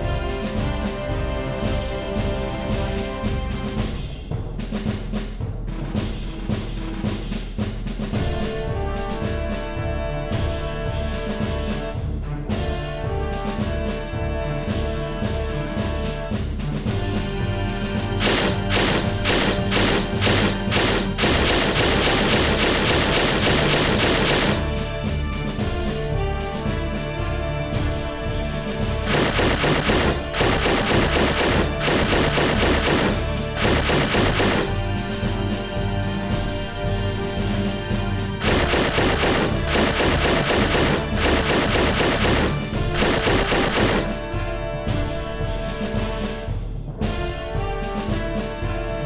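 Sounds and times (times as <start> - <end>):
background music: 0.0 - 49.0
automatic rifle fire: 18.2 - 24.8, 29.1 - 34.8, 38.4 - 44.2.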